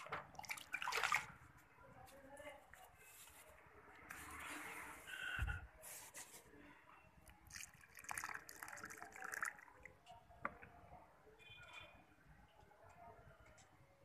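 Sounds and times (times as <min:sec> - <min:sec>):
water pouring into a pot: 0:00.3 - 0:01.3, 0:07.3 - 0:10.0.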